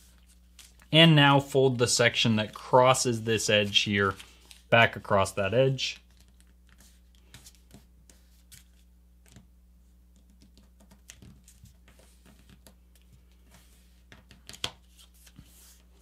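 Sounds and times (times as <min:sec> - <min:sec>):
paper being folded and creased: 0:00.0 - 0:00.9, 0:02.3 - 0:04.7, 0:10.4 - 0:16.0.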